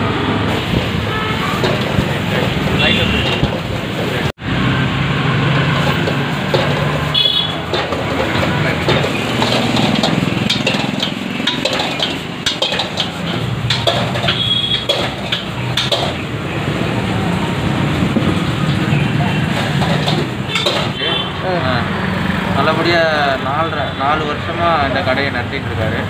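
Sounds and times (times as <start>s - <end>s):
metal ladle clanking in wok: 6.0s - 16.2s, 19.6s - 21.2s.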